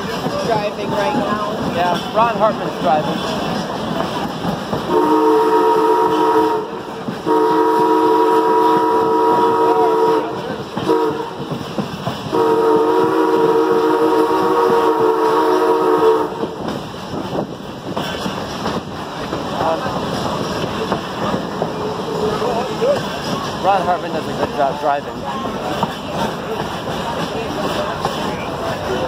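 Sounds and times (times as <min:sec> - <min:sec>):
train running: 0:00.0 - 0:29.0
steam locomotive whistle blasts: 0:04.9 - 0:11.4, 0:12.3 - 0:16.5.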